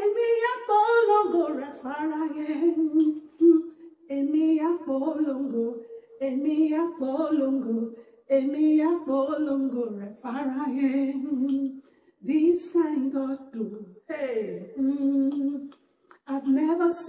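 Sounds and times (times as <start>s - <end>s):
woman singing into microphone: 0.0s - 17.0s.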